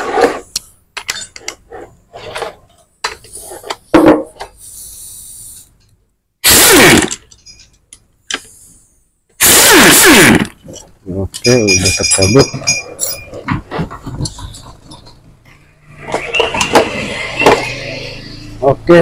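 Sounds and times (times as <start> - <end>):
impact wrench burst: 6.4 - 7.4, 9.4 - 10.6.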